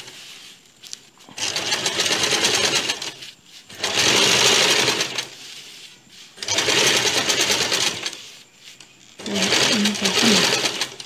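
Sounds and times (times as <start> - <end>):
electric sewing machine stitching: 1.4 - 5.4, 6.4 - 8.2, 9.2 - 11.0.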